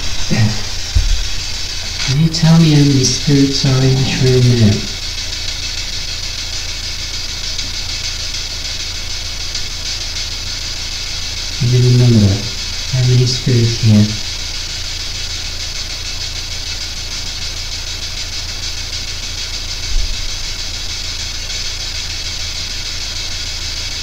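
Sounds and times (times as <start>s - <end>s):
low electrical hum: 0.0s - 24.0s
static hiss: 0.0s - 24.0s
short low thump: 0.8s - 1.3s.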